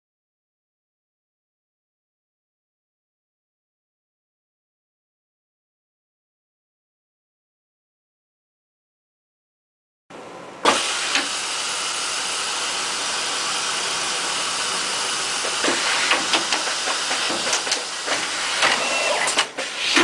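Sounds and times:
steady air hiss: 0:10.7 - 0:18.6.

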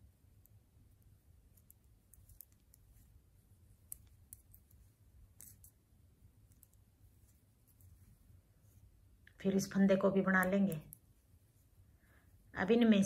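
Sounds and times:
knitting needles clicking: 0:00.0 - 0:05.8, 0:06.4 - 0:08.1, 0:10.1 - 0:11.2
low room hum: 0:00.0 - 0:13.0.

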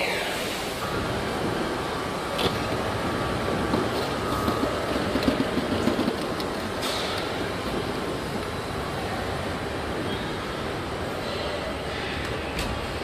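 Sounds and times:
roller shutter door rattling: 0:01.0 - 0:08.4.

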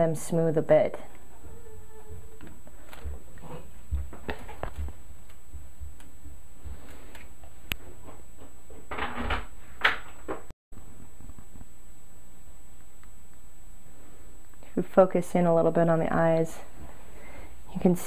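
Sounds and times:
paper rubbing and rustling: 0:02.4 - 0:06.0.

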